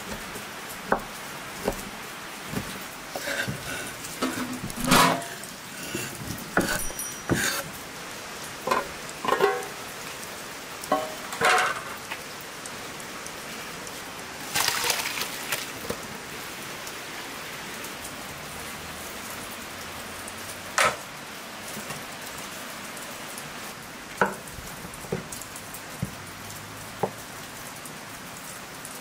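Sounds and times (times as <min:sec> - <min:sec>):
cookware knocking and clinking: 0:02.5 - 0:07.7, 0:08.7 - 0:09.8, 0:10.9 - 0:11.9
cookware clatter: 0:02.5 - 0:07.8, 0:08.7 - 0:09.8, 0:10.9 - 0:12.1.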